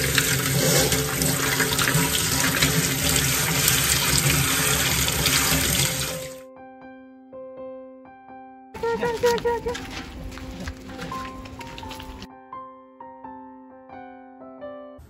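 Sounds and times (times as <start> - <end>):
tap water splashing into sink: 0.0 - 6.4
soft background music: 6.2 - 15.0.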